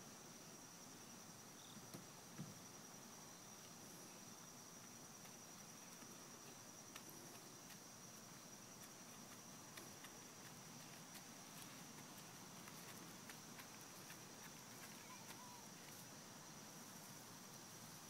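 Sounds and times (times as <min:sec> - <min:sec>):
high-pitched insect hum: 0:00.0 - 0:18.0.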